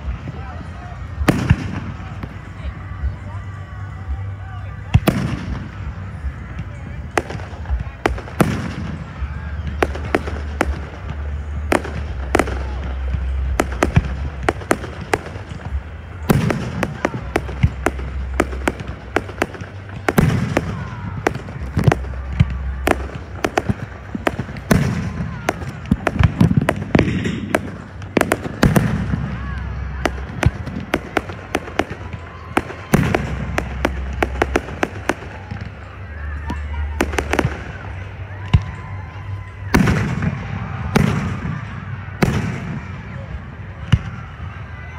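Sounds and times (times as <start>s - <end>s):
heavy fireworks booms: 0.0s - 3.0s, 4.8s - 44.6s
fireworks bangs and crackles: 0.0s - 44.9s.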